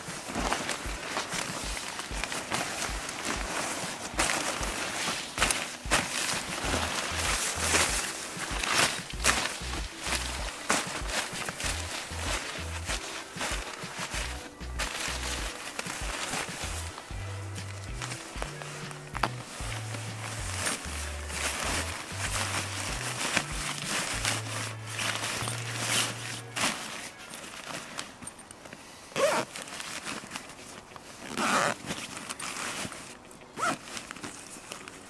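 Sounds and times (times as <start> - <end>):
background music with bass: 0.0 - 26.8
tent fabric rustling: 0.0 - 35.0
zipper pulled shut: 29.2 - 29.8, 31.3 - 33.0, 33.6 - 34.1.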